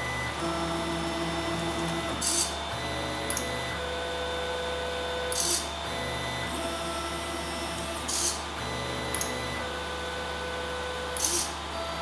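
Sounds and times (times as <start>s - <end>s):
stepper motors whining: 5.3s - 12.0s.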